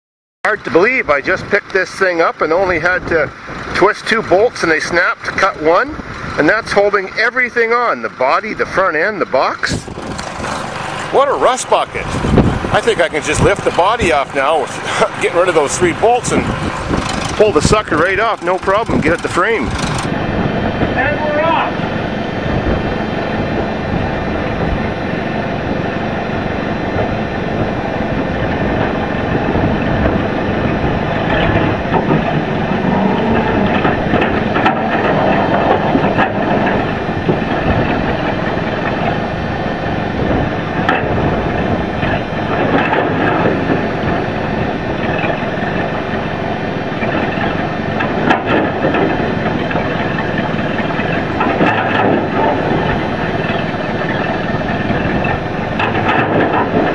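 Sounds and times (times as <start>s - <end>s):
engine running: 0.5s - 56.9s
metallic clanks: 9.8s - 20.2s, 31.2s - 39.1s, 47.0s - 56.9s.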